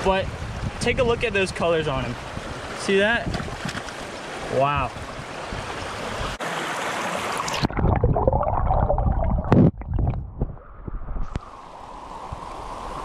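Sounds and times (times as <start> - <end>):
rushing stream: 0.0 - 8.9, 11.2 - 13.0
water sloshing splashes: 2.5 - 8.1.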